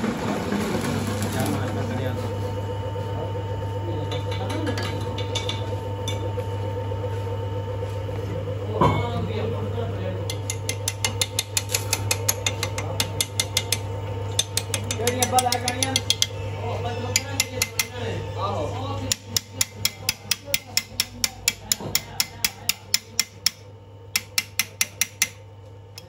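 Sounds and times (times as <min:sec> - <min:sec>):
metal lathe humming: 0:00.1 - 0:26.0
file ticking on spinning metal: 0:10.3 - 0:16.4, 0:17.0 - 0:18.0, 0:19.0 - 0:25.4.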